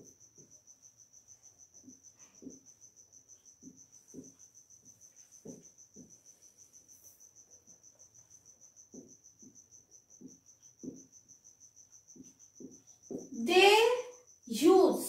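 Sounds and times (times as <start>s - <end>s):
cricket chirping: 0.0s - 15.0s.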